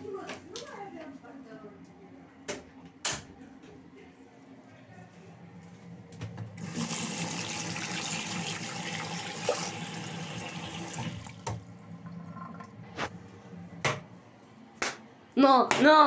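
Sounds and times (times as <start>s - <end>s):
sink tap running: 6.6s - 12.8s.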